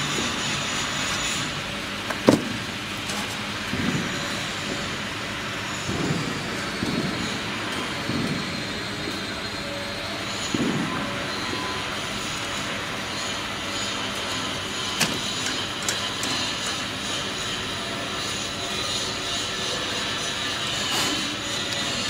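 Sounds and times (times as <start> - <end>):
factory machinery hum and hiss: 0.0 - 22.0.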